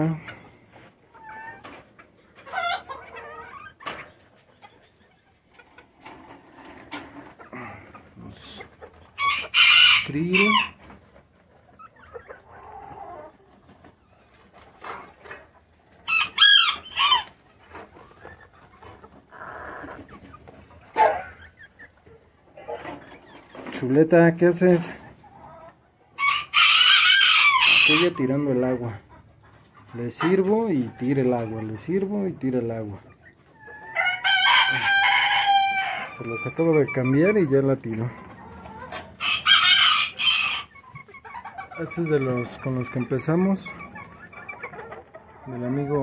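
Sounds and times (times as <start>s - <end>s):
hens clucking: 0.0s - 46.0s
roosters crowing: 9.1s - 10.8s, 16.0s - 17.5s, 26.1s - 28.2s, 33.7s - 37.3s, 38.2s - 43.1s.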